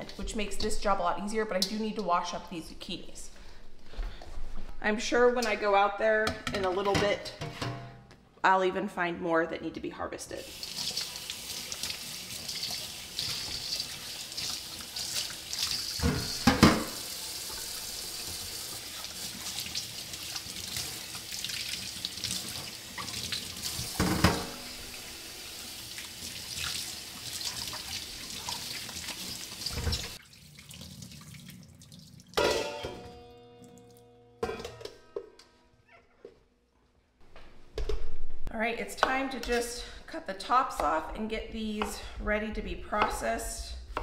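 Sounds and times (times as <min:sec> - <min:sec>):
kitchen faucet running into sink: 0:10.4 - 0:32.4
knocks in metal colander: 0:32.4 - 0:33.2.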